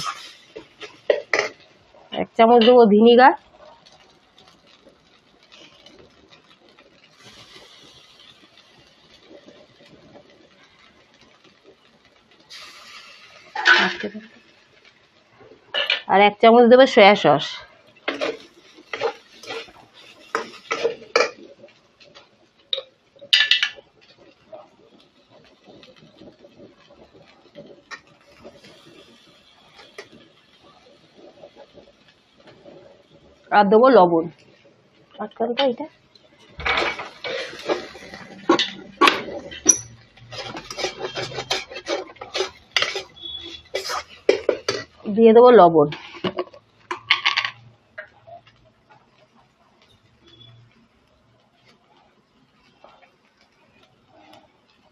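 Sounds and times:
metal spatula scraping a wok: 0:00.0 - 0:01.7, 0:17.4 - 0:21.5, 0:36.4 - 0:45.1, 0:45.9 - 0:47.6.

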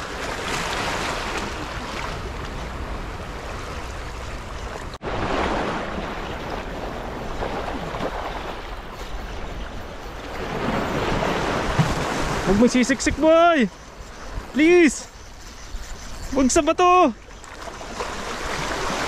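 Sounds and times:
waves splashing over rocks: 0:04.8 - 0:13.7, 0:17.2 - 0:19.0.

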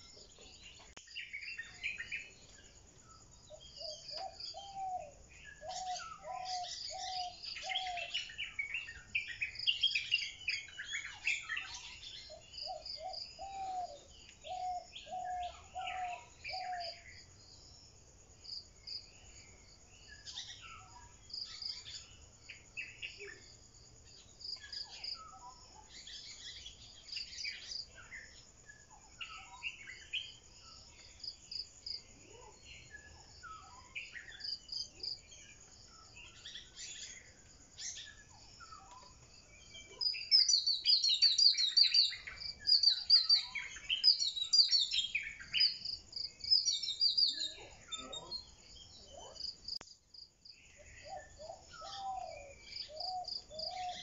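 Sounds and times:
insects trilling: 0:00.0 - 0:54.0
birds chirping and calling: 0:03.5 - 0:17.3, 0:32.4 - 0:49.8, 0:50.6 - 0:54.0.

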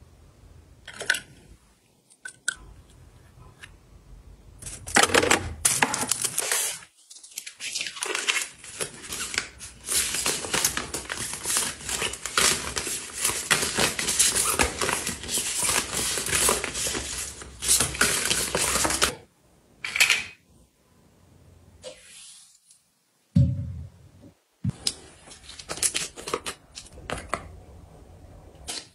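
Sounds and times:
foil sachets crinkling: 0:05.7 - 0:19.2.

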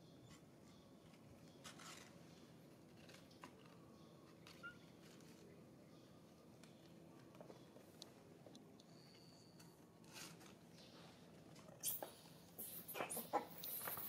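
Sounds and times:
faint background hum: 0:00.0 - 0:14.0
soft ticks and scuffs: 0:10.0 - 0:14.0.

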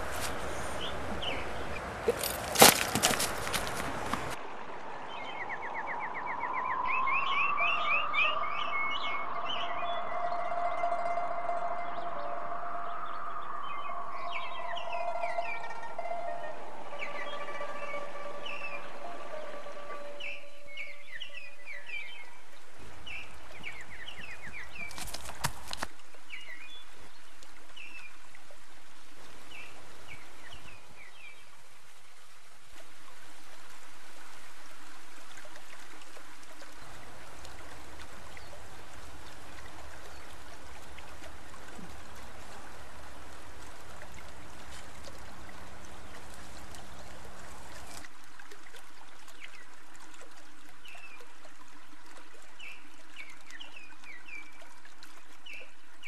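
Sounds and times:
steady rushing hiss: 0:00.0 - 0:02.6.

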